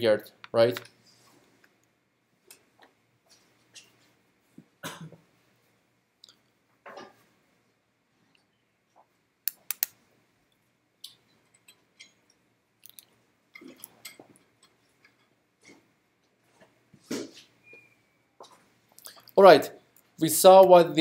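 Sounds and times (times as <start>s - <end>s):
sharp clicks and small knocks: 9.0s - 10.0s.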